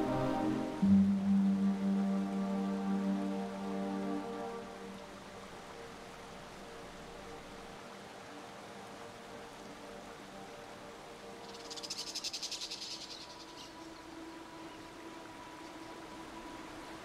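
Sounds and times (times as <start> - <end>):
faint low drone: 0.0 - 11.4.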